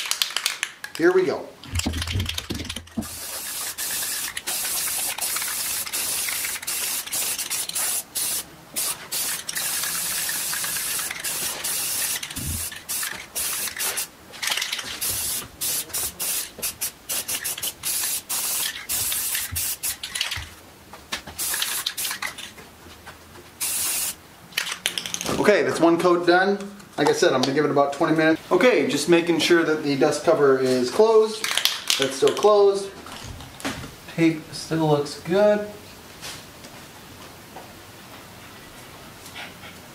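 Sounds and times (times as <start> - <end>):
spray paint can hissing: 1.8 - 20.4, 21.4 - 22.4, 23.6 - 24.2.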